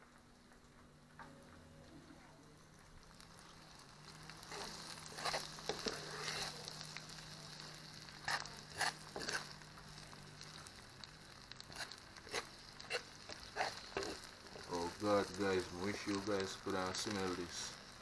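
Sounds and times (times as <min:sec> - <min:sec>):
food sizzling and bubbling: 0:00.0 - 0:18.0
spoon stirring and scraping pan: 0:03.2 - 0:16.3.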